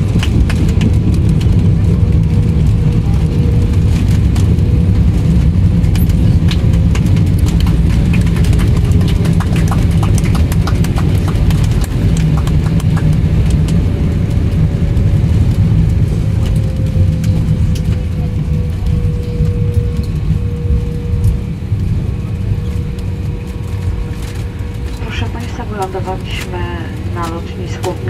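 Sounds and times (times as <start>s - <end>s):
jet engine and rolling rumble: 0.0s - 28.0s.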